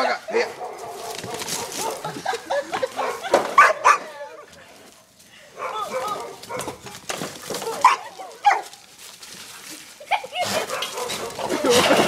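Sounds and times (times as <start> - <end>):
dogs barking and yelping: 0.0 - 4.4, 5.6 - 8.8, 10.1 - 12.0.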